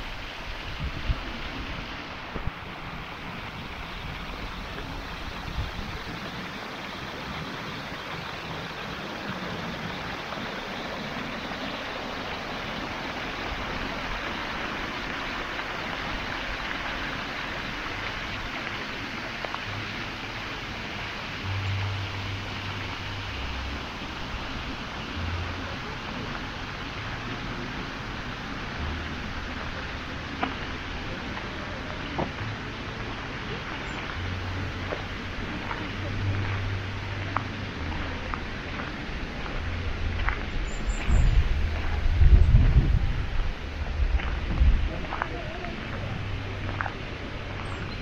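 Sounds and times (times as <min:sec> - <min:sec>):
steady rushing outdoor noise: 0:00.0 - 0:48.0.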